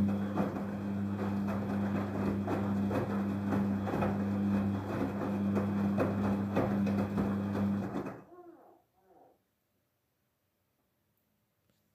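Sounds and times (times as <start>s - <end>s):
laundry tumbling knocks: 0.0s - 8.2s
washing machine motor hum: 0.0s - 8.4s.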